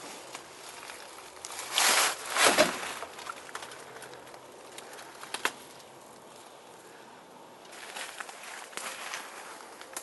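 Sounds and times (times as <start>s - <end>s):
footsteps crunching dry leaves: 7.7s - 10.0s.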